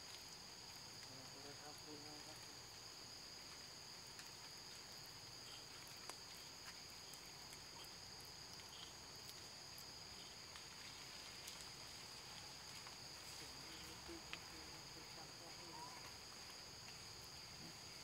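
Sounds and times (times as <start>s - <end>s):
high-pitched drone of forest insects: 0.0s - 18.0s
faint ticks: 3.5s - 4.8s, 5.4s - 13.0s.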